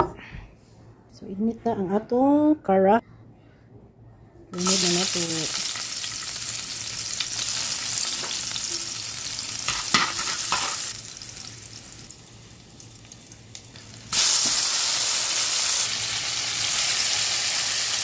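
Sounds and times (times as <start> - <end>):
garlic sizzling in hot oil: 4.6 - 18.0.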